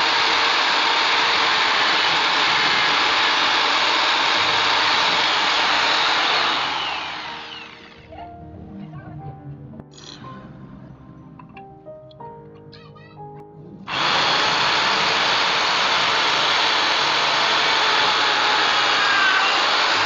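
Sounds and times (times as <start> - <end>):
electric drill boring into steel: 0.0 - 8.1, 13.9 - 20.0
background music: 7.8 - 14.0.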